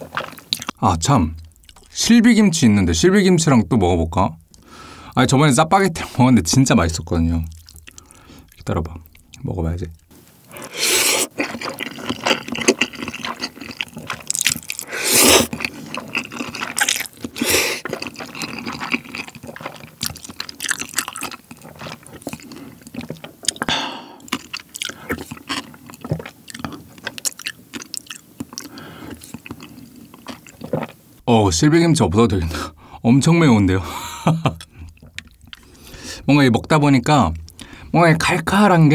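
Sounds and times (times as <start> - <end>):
wet chewing and smacking: 0.0 - 2.0, 7.0 - 31.0, 34.4 - 35.9, 36.5 - 37.8
slurping noodles: 10.5 - 23.6.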